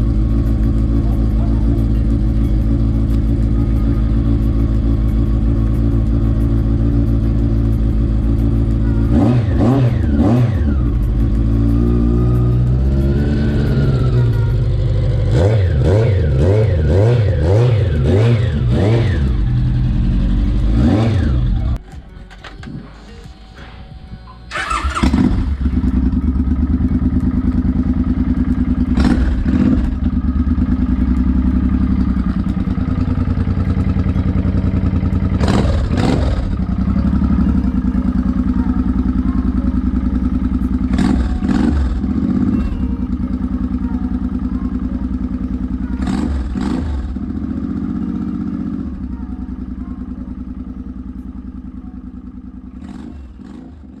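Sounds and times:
motorcycle engine idling: 0:00.0 - 0:54.0
throttle revving: 0:09.0 - 0:21.8, 0:24.5 - 0:26.2, 0:33.2 - 0:38.0.

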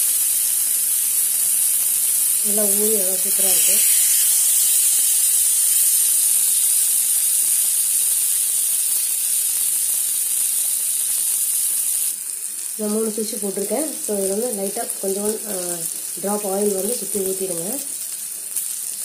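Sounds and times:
fish sizzling in oil: 0:00.0 - 0:19.0.

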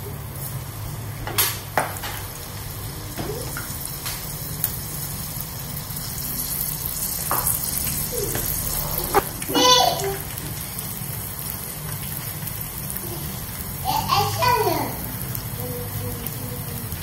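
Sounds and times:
prawns deep-frying in oil: 0:00.0 - 0:17.0.

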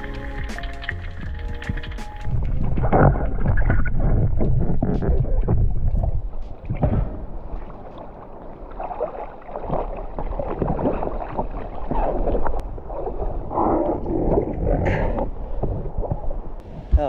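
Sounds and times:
sea water sloshing and splashing: 0:00.0 - 0:16.6
heavy low rumble: 0:01.1 - 0:07.5.

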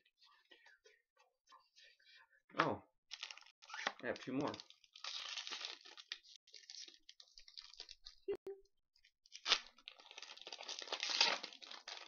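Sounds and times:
foil wrapper crinkling and tearing: 0:03.1 - 0:08.2, 0:09.2 - 0:12.0.

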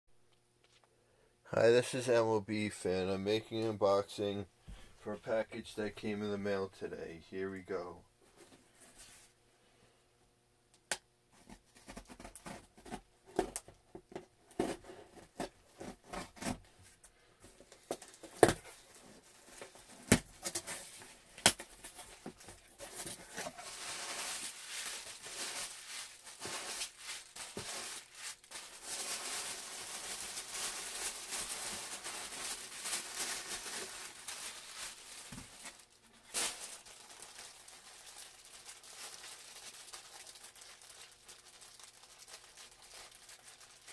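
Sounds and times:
packing paper and plastic crinkling: 0:17.4 - 0:43.9.

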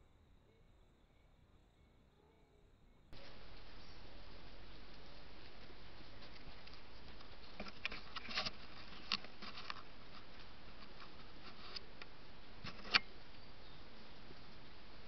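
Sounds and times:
steady hiss: 0:03.1 - 0:15.0
animals rustling in dry leaves: 0:03.2 - 0:15.0.

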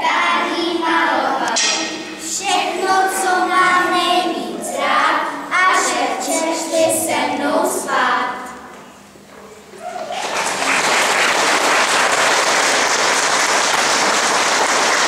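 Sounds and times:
children singing together: 0:00.0 - 0:08.6.

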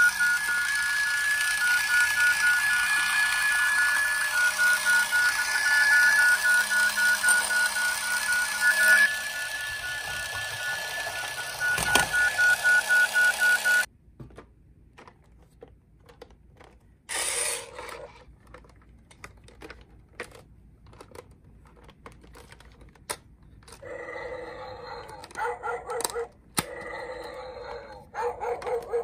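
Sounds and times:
toy electronic siren pulsing: 0:00.0 - 0:13.9, 0:17.1 - 0:18.1, 0:26.1 - 0:29.0
toy electronic sound effect: 0:00.0 - 0:13.9, 0:17.1 - 0:18.1
plastic toy cars clicking: 0:15.0 - 0:23.9.

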